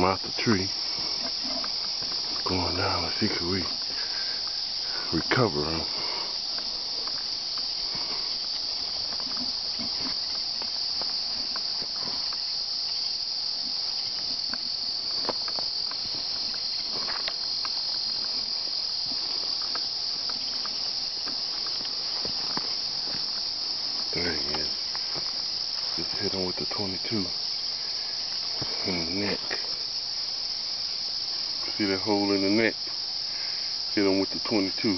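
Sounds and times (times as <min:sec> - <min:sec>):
high-pitched insect chorus: 0:00.0 - 0:34.9
footsteps through grass: 0:05.8 - 0:13.0, 0:13.7 - 0:26.3.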